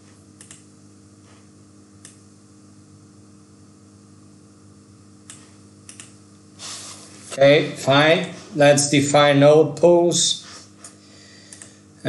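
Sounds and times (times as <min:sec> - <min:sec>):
faint electrical hum: 0:00.0 - 0:12.0
computer mouse clicks: 0:00.4 - 0:00.6, 0:05.3 - 0:06.2, 0:11.5 - 0:11.7.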